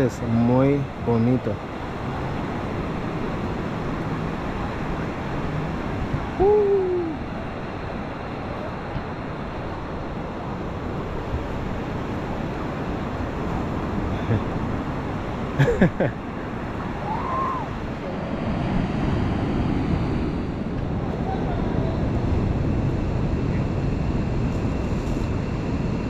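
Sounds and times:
ocean surf rushing: 0:00.0 - 0:26.0
wind noise: 0:00.0 - 0:26.0
hoot-like call: 0:06.4 - 0:07.2.

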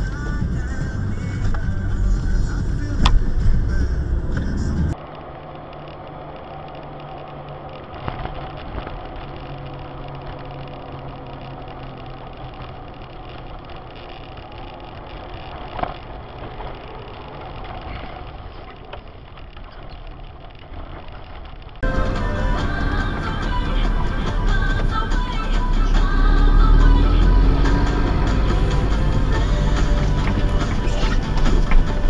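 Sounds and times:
car engine and tyre noise: 0:00.0 - 0:32.0.

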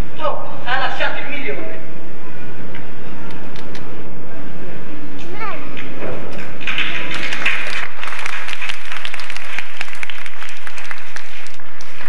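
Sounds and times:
audience applauding: 0:06.3 - 0:12.0.

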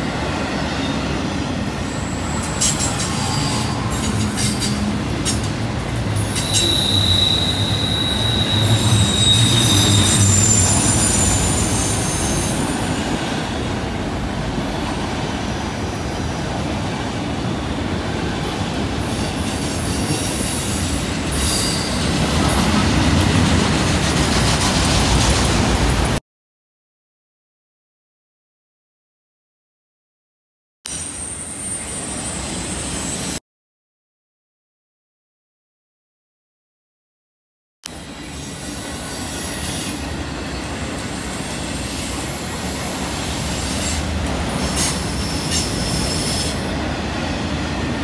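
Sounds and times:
rumble of train wheels on rail: 0:00.0 - 0:26.2, 0:37.9 - 0:48.0
high wheel squeal: 0:01.8 - 0:05.4, 0:06.2 - 0:13.7, 0:18.2 - 0:22.5, 0:30.9 - 0:33.4, 0:38.1 - 0:46.8.

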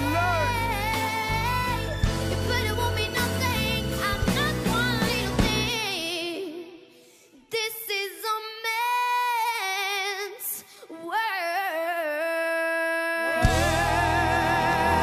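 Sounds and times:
backing music: 0:00.0 - 0:05.9, 0:13.4 - 0:15.0
girl singing into a microphone: 0:00.0 - 0:13.4.

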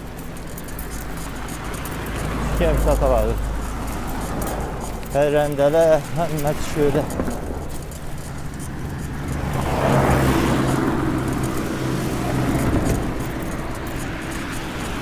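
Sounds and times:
truck engine hum: 0:00.0 - 0:15.0
tyre noise on road: 0:00.0 - 0:15.0.

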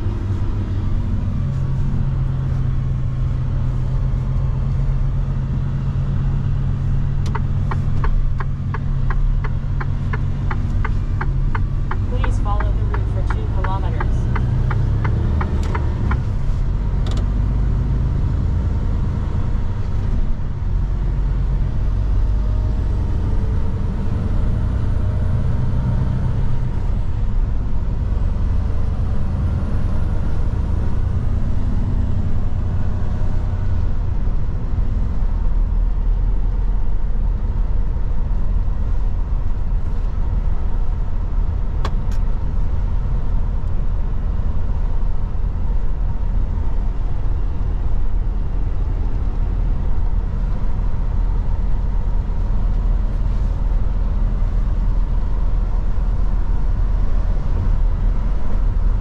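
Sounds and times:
truck engine rumble in cab: 0:00.0 - 0:59.0.

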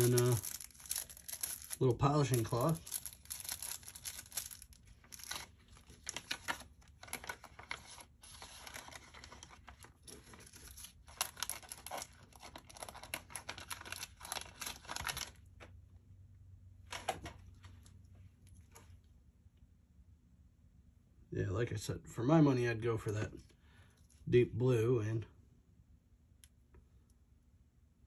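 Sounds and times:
plastic bags crinkling: 0:00.0 - 0:15.4.

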